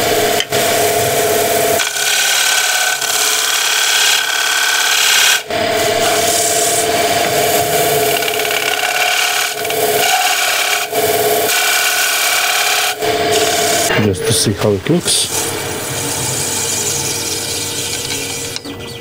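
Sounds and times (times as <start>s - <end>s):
gouge scraping wood on lathe: 1.8s - 14.1s.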